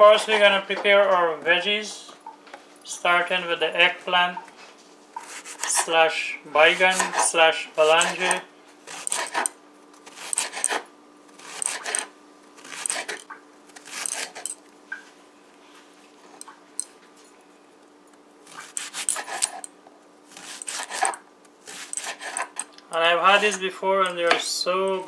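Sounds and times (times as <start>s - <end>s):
knife slicing eggplant: 5.2s - 5.9s, 6.7s - 13.2s, 18.5s - 19.6s, 20.3s - 22.6s.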